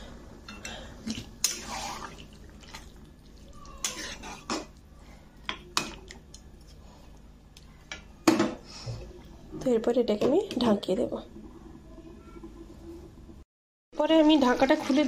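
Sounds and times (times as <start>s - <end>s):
utensil stirring thick curry: 1.5s - 6.8s.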